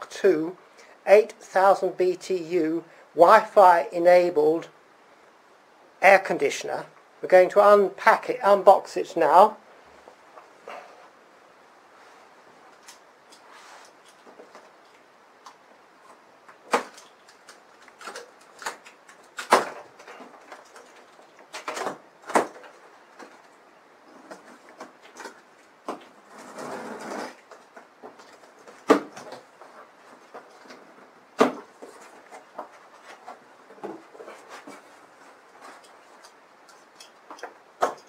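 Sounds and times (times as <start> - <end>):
tape being cut scraping: 26.3 - 27.5.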